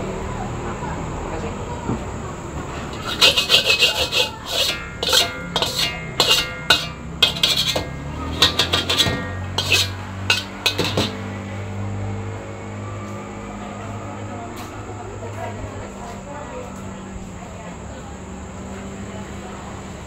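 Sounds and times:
steady low hum: 0:02.3 - 0:13.0
metal spatula scraping a wok: 0:02.9 - 0:11.8.

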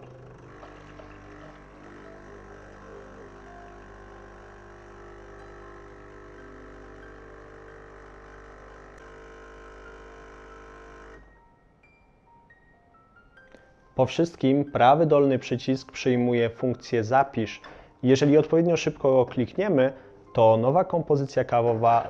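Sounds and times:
coffee machine pump humming: 0:00.0 - 0:11.3.

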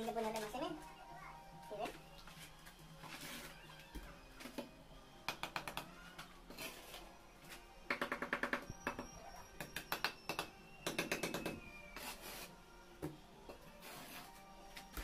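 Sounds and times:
background music: 0:00.0 - 0:15.0
trowel scraping wet mortar: 0:06.5 - 0:07.0.

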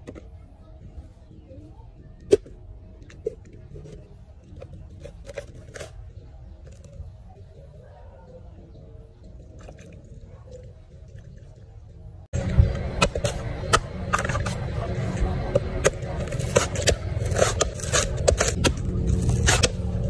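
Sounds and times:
coconut husk cracking and tearing: 0:15.5 - 0:20.0.

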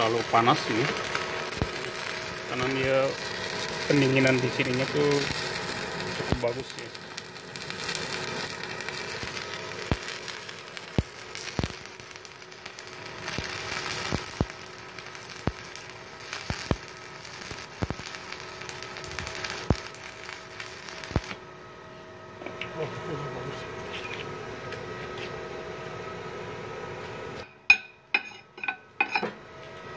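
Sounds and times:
welding arc crackling hiss: 0:00.0 - 0:21.5.

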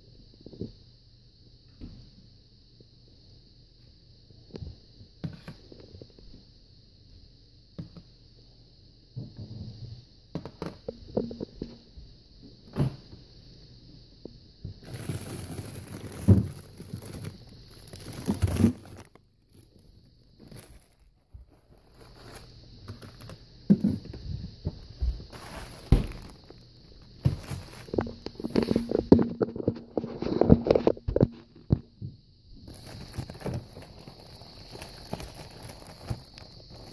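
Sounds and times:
faint high-pitched hiss: 0:00.0 - 0:36.9
crinkly rustling of packages: 0:14.8 - 0:24.1, 0:24.7 - 0:31.0, 0:32.6 - 0:36.9.

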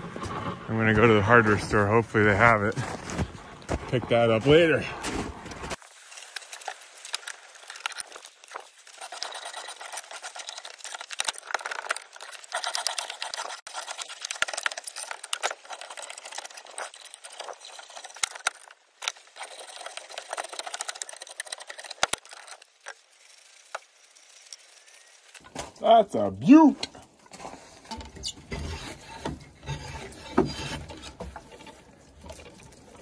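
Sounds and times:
drawknife scraping bark: 0:28.2 - 0:32.0.

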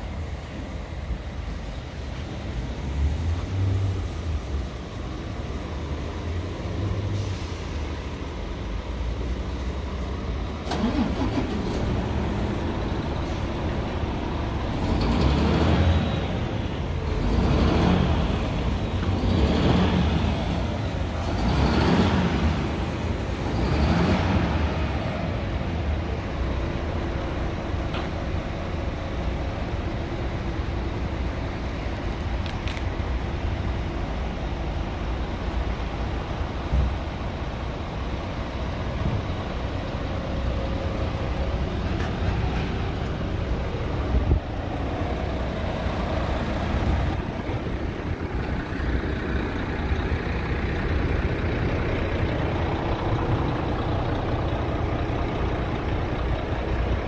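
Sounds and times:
diesel truck engine running: 0:00.0 - 0:57.0.

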